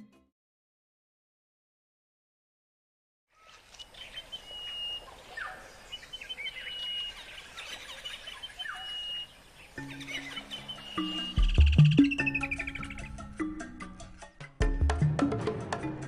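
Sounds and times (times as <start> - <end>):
birds calling: 3.3 - 13.9
bird whistling phrase: 8.4 - 9.4, 10.0 - 13.2
music with low held notes: 9.8 - 16.0.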